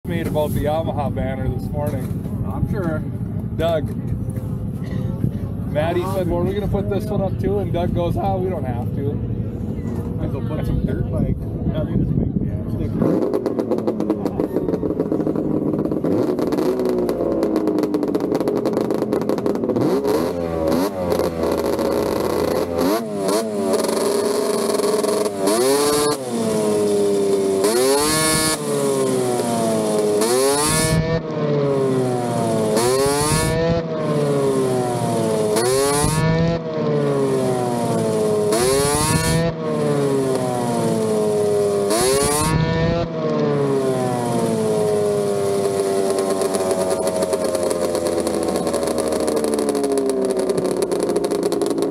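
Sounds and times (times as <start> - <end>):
snowmobile engine revving: 12.7 - 51.9.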